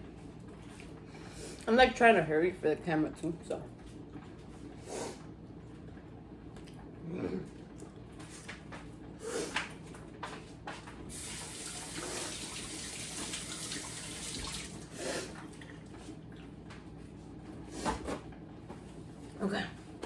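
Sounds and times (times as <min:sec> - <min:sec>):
faucet water splashing into sink: 0:11.1 - 0:14.8.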